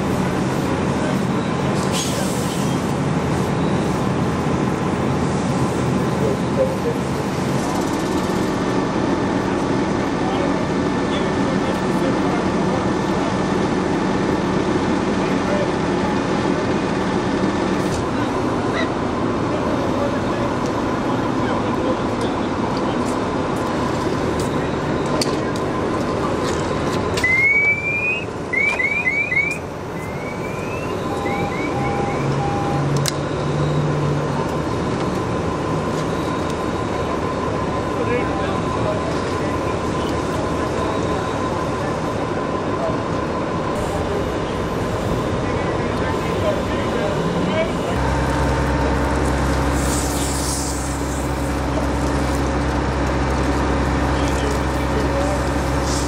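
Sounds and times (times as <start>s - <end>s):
truck engine rumble and hiss: 0.0s - 56.0s
short beeps: 27.2s - 33.8s
high rising chirps: 27.3s - 32.8s.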